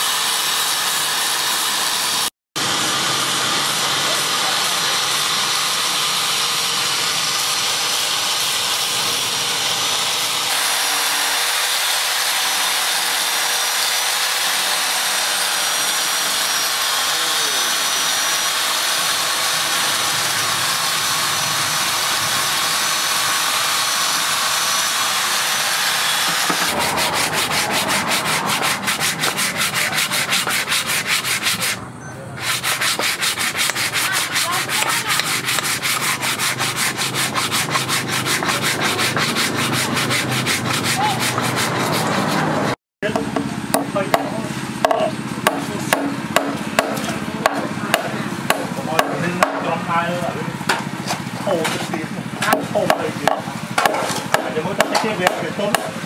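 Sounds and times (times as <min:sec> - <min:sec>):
sandpaper rubbing on wood: 0:07.6 - 0:21.2, 0:21.8 - 0:31.8, 0:32.4 - 0:42.8.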